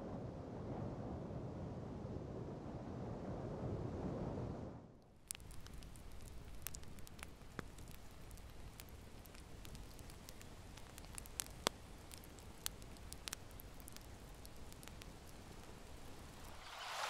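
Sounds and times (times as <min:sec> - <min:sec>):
logs crackling and popping: 0:05.0 - 0:17.0
soft rush of flame: 0:05.2 - 0:17.0.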